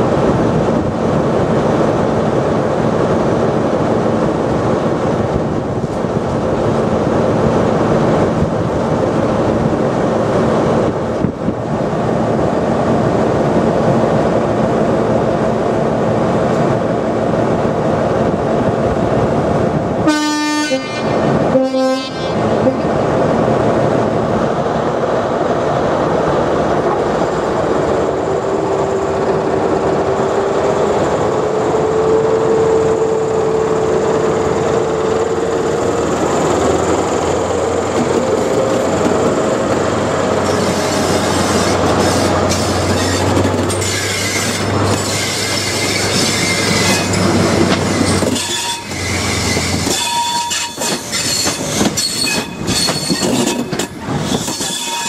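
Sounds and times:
train horn blasts: 0:20.0 - 0:22.9, 0:48.3 - 0:49.1, 0:49.8 - 0:50.9
wheels clicking over rail joints: 0:37.5 - 0:55.0.

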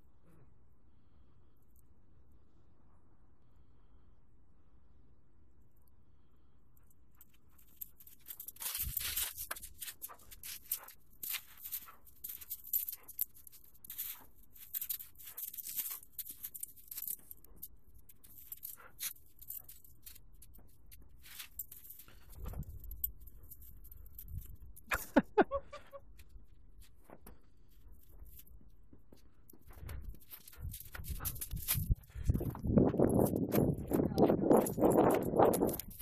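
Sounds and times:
footsteps crunching in snow: 0:07.6 - 0:17.4, 0:26.8 - 0:36.0.

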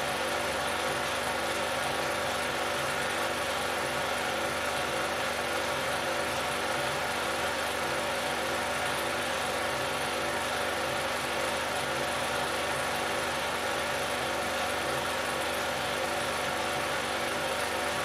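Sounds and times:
film projector whirring: 0:00.0 - 0:18.0.

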